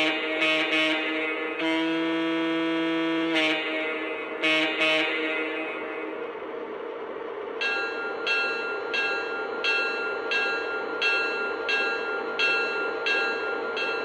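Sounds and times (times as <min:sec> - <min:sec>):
electronic locomotive bell ringing: 0:07.6 - 0:14.0.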